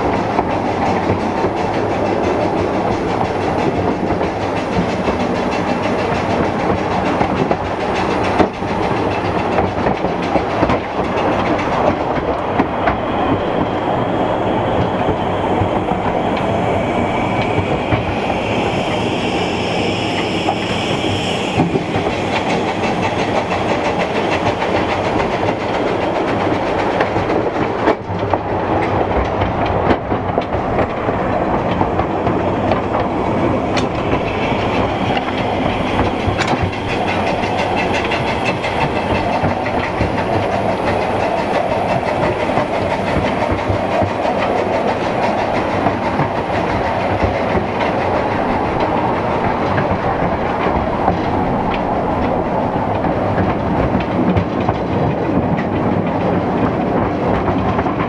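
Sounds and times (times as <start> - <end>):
train rumbling on track: 0.0 - 58.0
wheels clicking: 21.5 - 58.0.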